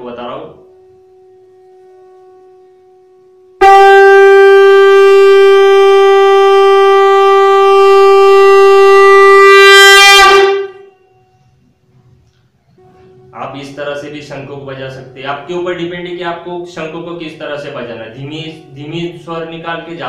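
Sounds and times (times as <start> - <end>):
conch shell blown: 0.0 - 13.4.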